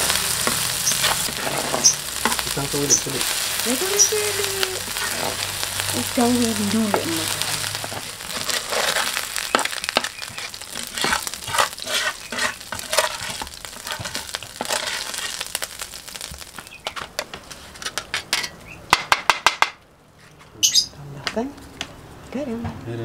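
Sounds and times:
metal skimmer scraping wok: 0:00.0 - 0:15.8, 0:16.8 - 0:18.6
hot oil sizzling in a wok: 0:00.0 - 0:19.6.

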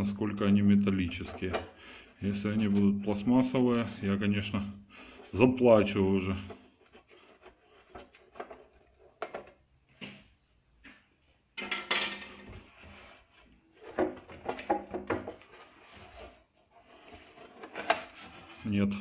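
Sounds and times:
metal cover clattering: 0:11.6 - 0:12.5.

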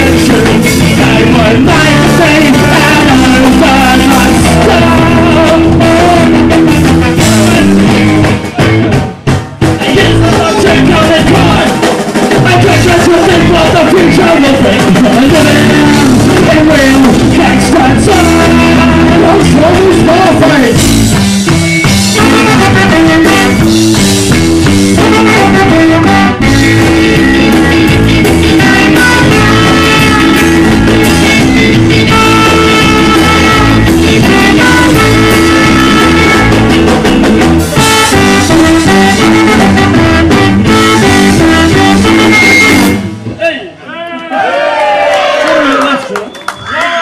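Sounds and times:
electric bass: 0:00.0 - 0:43.4
electric guitar: 0:00.0 - 0:43.4
drum kit: 0:00.0 - 0:43.6
trombone and trumpet: 0:22.0 - 0:43.1.

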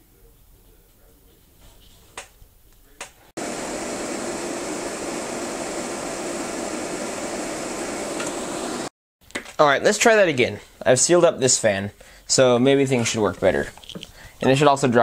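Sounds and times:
electric fans rushing air with hum: 0:03.4 - 0:08.9.

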